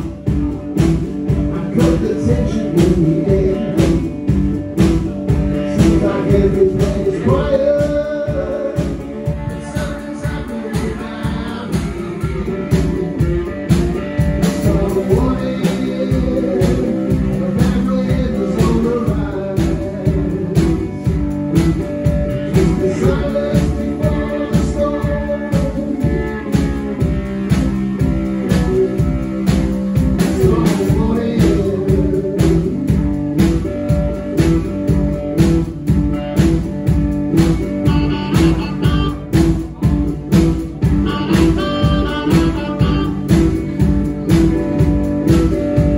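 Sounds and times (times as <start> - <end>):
drum kit beat: 0.0 - 45.9
harmonica: 5.4 - 39.8, 40.6 - 45.9.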